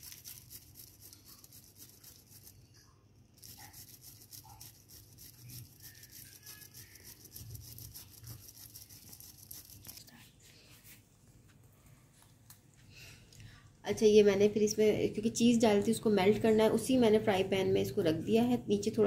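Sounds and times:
cheese grating on metal grater: 0.0s - 2.7s, 3.4s - 10.1s.

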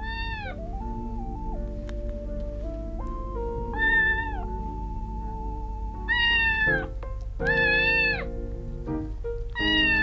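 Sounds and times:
kitten meowing: 0.0s - 0.8s, 3.7s - 4.9s, 5.7s - 8.3s, 9.5s - 10.0s
soft background music: 0.0s - 10.0s.

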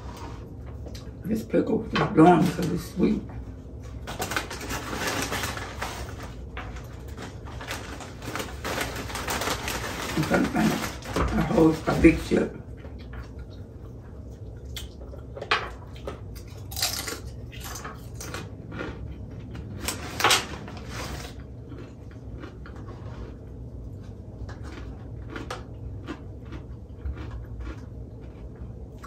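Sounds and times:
potato chips crunching: 0.9s - 29.0s.

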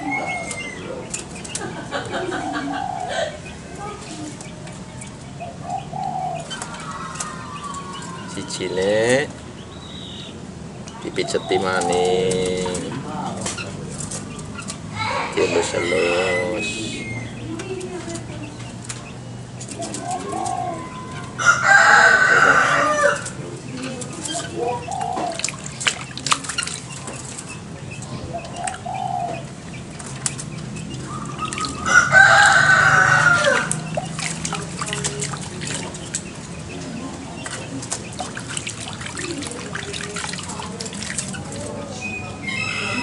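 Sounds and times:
water dripping and splashing: 10.8s - 15.0s, 23.1s - 42.0s
rooster crowing: 20.8s - 23.3s, 31.8s - 33.8s, 42.4s - 43.0s.

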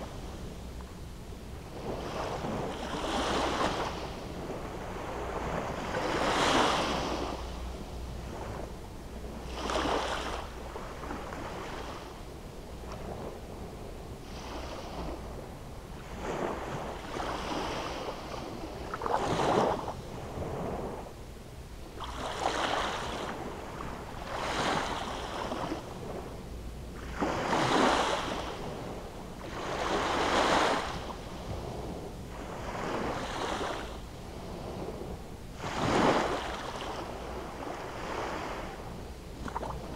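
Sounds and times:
small waves breaking on sand: 1.7s - 7.6s, 9.4s - 12.2s, 14.2s - 21.1s, 22.0s - 26.3s, 27.0s - 39.9s.

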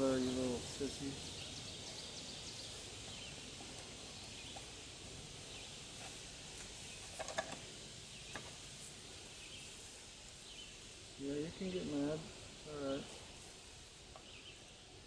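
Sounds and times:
distant birds chirping: 0.0s - 15.0s.

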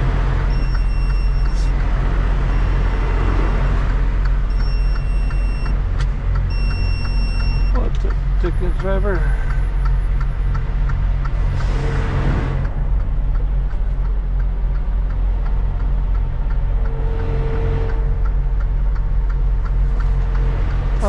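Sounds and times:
diesel truck engine running: 0.0s - 21.0s
faint regular ticking: 3.8s - 11.7s, 12.6s - 21.0s.

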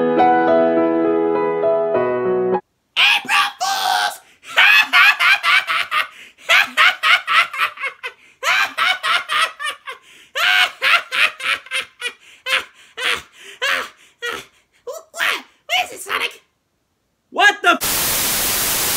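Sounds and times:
person laughing high-pitched: 4.5s - 14.5s.

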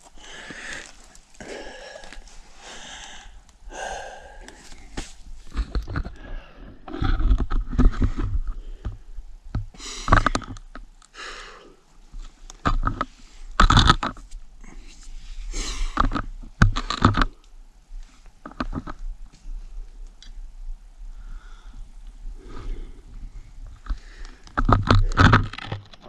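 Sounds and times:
person breathing hard: 0.1s - 5.2s, 9.7s - 10.5s, 11.1s - 11.8s, 14.6s - 16.2s, 21.1s - 25.4s.

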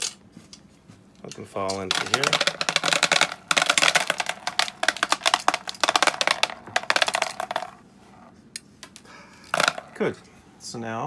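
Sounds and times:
capsules clattering into plastic tub: 1.6s - 7.8s, 9.4s - 10.0s.

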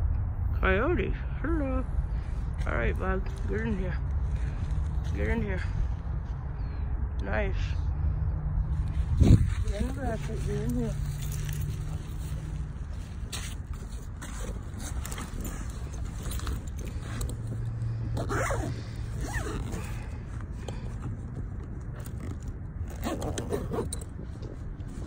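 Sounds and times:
fabric rustling against microphone: 8.6s - 25.0s.

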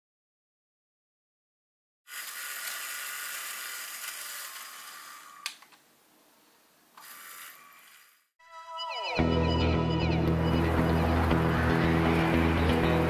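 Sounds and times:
high-pitched electric motor whir: 2.1s - 5.5s, 7.0s - 8.3s.

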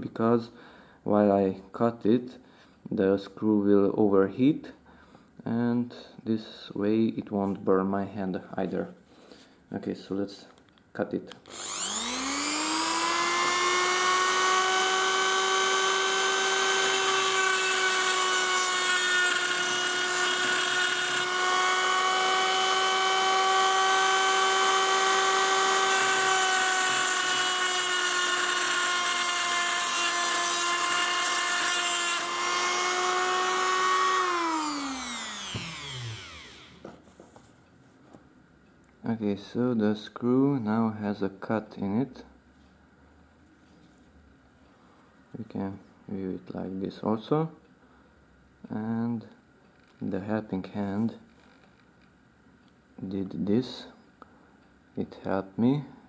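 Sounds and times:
cut-off disc cutting metal: 11.5s - 36.8s
rotary tool motor whine: 11.5s - 36.8s.

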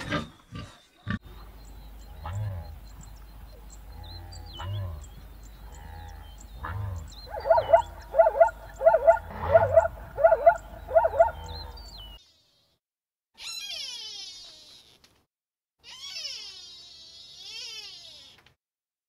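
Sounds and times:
zebra barking yelps: 4.5s - 5.1s, 6.4s - 12.2s.

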